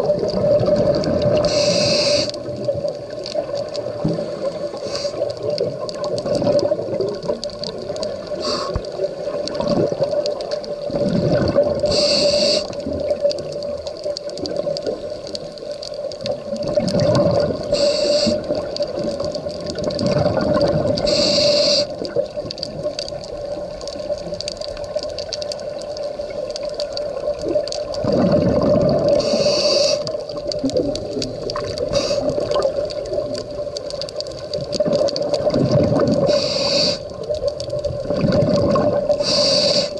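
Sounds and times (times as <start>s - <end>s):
regulator bubbles gurgling: 0.0s - 39.9s
regulator inhalation hiss: 1.4s - 2.5s, 4.0s - 5.4s, 8.3s - 9.0s, 11.8s - 12.9s, 17.7s - 18.7s, 21.0s - 22.1s, 29.2s - 30.2s, 31.8s - 32.6s, 36.2s - 37.2s, 39.1s - 39.9s.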